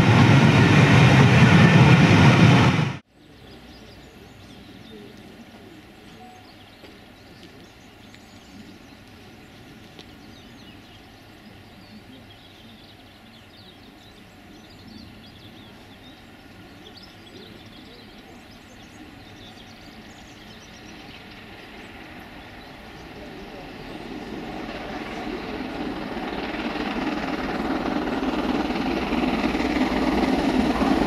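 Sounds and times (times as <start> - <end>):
distant steam locomotive rumble: 0.0 - 31.0.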